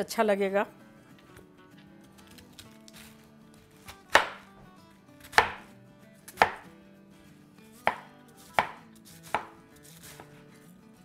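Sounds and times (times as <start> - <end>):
knife chopping cabbage on board: 2.3 - 4.5, 5.2 - 5.7, 6.3 - 6.7, 7.8 - 10.4.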